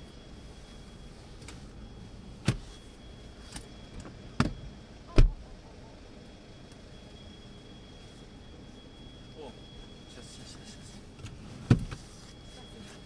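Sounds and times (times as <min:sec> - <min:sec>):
knocks and clunks in a car: 0:04.4 - 0:05.4.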